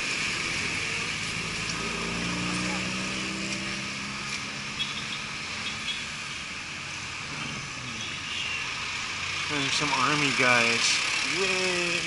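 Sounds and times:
city street traffic: 0.0 - 12.0.

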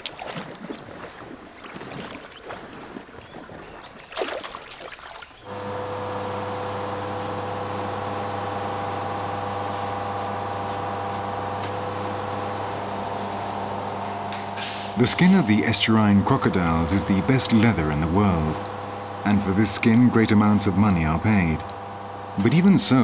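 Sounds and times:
machine hum with fixed tones: 5.5 - 23.0.

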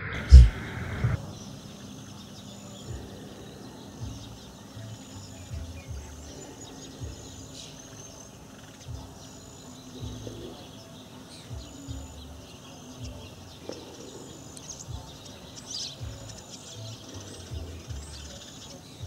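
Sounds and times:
low thumps on microphone: 0.0 - 1.2, 4.0 - 4.4, 7.0 - 7.4, 10.0 - 10.6, 14.8 - 15.3, 16.0 - 16.4
insects trilling: 0.0 - 19.0.

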